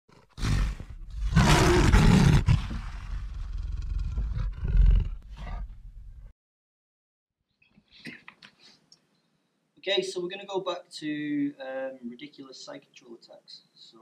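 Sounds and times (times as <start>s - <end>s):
animal roar with echo: 0.4s - 5.7s.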